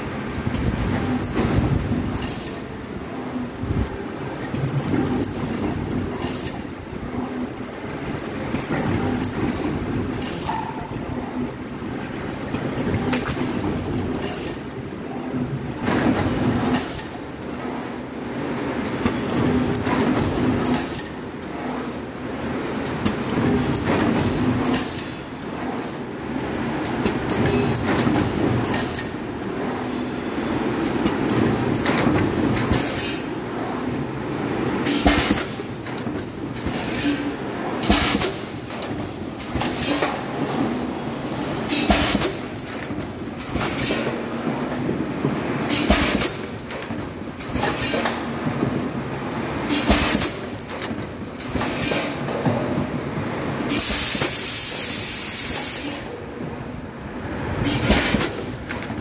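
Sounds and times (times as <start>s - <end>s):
mechanical conveyor clatter: 0.0s - 59.0s
loud hiss of air: 53.7s - 56.1s.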